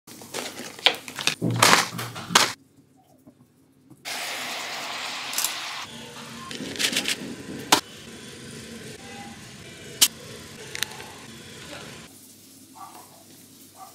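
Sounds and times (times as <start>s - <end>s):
plastic lid and foil crinkling: 0.1s - 2.6s
steam hissing: 4.1s - 12.1s.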